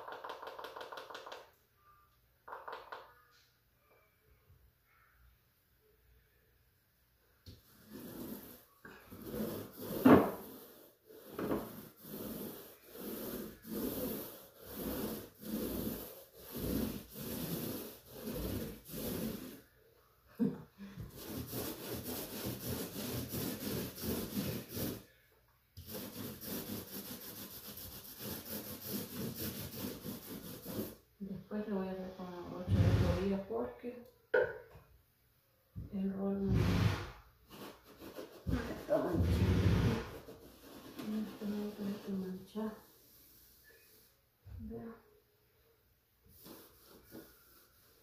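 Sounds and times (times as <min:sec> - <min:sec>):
paint roller rolling on wall: 0:00.0 - 0:01.6, 0:07.5 - 0:19.7, 0:20.9 - 0:25.1, 0:25.8 - 0:31.0, 0:32.0 - 0:33.4, 0:36.4 - 0:44.1, 0:46.3 - 0:48.0.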